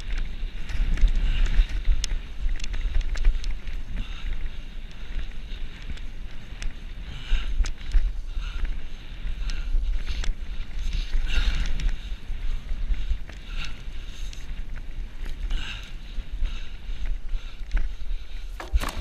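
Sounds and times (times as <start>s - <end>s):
wind buffeting microphone: 0.0s - 19.0s
knocks and rattles from bumps: 18.5s - 19.0s.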